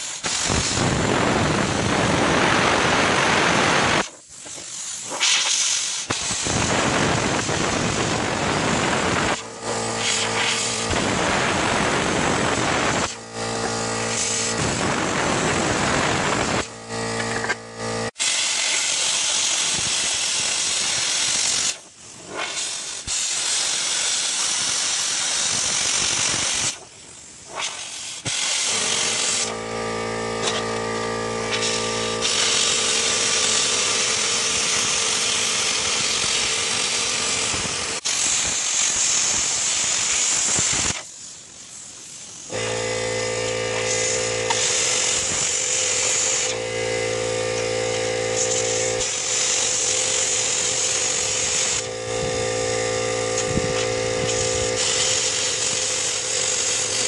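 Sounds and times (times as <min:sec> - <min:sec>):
plasma cutter hissing: 0:00.0 - 0:57.0
pitched machine hum: 0:06.5 - 0:18.2, 0:28.6 - 0:38.2, 0:42.5 - 0:57.0.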